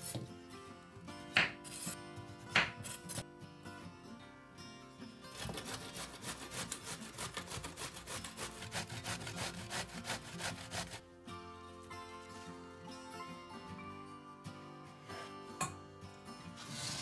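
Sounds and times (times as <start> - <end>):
background music: 0.0 - 17.0
vegetable grated on metal grater: 5.3 - 11.0.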